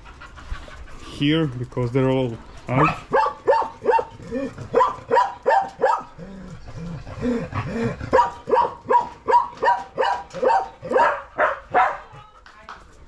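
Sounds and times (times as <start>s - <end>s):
dog barking: 2.8s - 4.1s, 4.8s - 6.1s, 8.1s - 12.1s.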